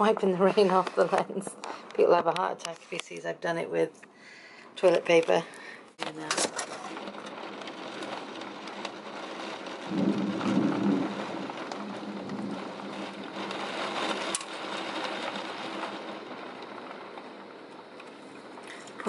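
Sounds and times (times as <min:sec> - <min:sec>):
heavy rain pouring: 0:04.8 - 0:19.0
low thunder rumble: 0:06.8 - 0:19.0.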